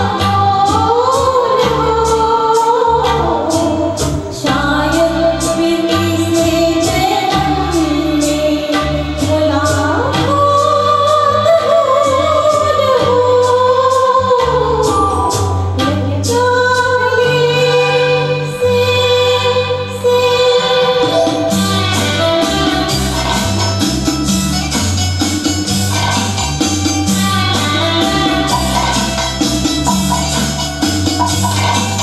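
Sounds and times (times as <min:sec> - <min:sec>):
woman singing into microphone: 0:00.0 - 0:23.9, 0:26.9 - 0:29.2
backing track with bass and beat: 0:00.0 - 0:32.0.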